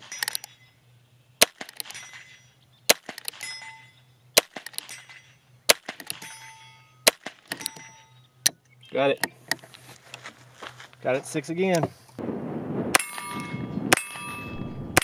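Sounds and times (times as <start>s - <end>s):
bullet ringing steel target: 0.0s - 0.8s, 1.4s - 8.3s, 12.9s - 15.0s
revolver gunshots: 1.4s - 7.9s.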